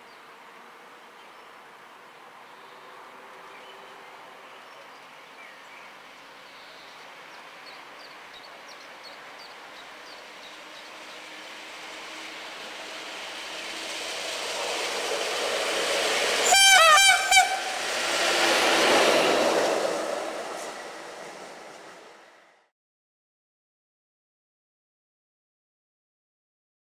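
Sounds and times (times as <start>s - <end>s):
locomotive rail noise: 7.0s - 22.7s
locomotive horn blasts: 16.4s - 17.9s.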